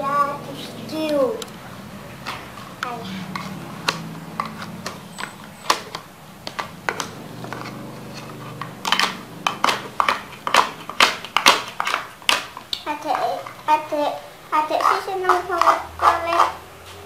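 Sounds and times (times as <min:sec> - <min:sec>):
toy knife tapping plastic plate: 0:02.3 - 0:13.6, 0:14.8 - 0:16.6.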